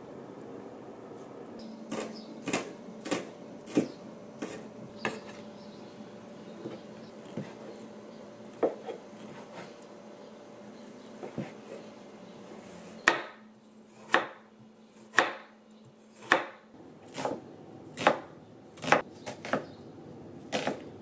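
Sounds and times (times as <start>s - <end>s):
knife chopping on plastic board: 1.9s - 5.4s, 6.6s - 7.7s, 8.5s - 9.7s, 13.0s - 14.5s, 15.1s - 15.5s, 16.2s - 17.4s, 18.0s - 19.7s, 20.5s - 20.9s.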